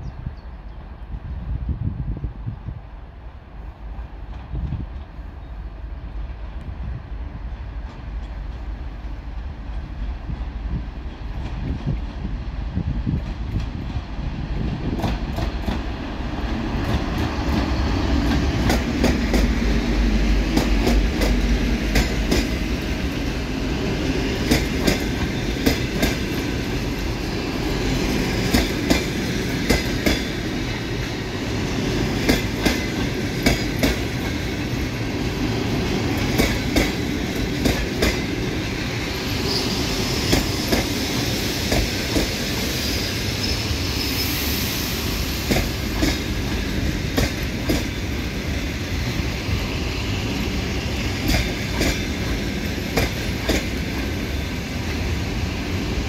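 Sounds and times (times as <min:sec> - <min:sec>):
diesel locomotive engine rumble: 0:00.0 - 0:56.0
train wheels clicking over rail joints: 0:13.1 - 0:23.3, 0:24.1 - 0:35.0, 0:35.8 - 0:42.8, 0:45.4 - 0:48.8, 0:50.8 - 0:55.1
high wheel squeal: 0:39.0 - 0:41.7, 0:42.4 - 0:45.5.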